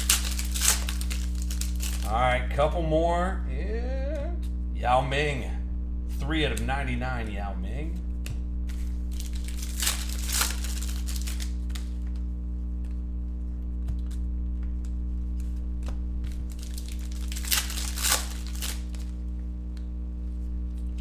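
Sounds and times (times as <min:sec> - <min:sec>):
foil wrappers crinkling and tearing: 0:00.0 - 0:02.2, 0:08.7 - 0:12.2, 0:16.2 - 0:19.3
steady electrical hum: 0:00.0 - 0:21.0.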